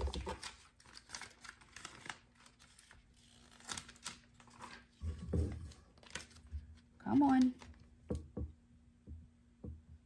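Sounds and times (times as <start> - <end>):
decal backing paper crackling: 0.0 - 8.0.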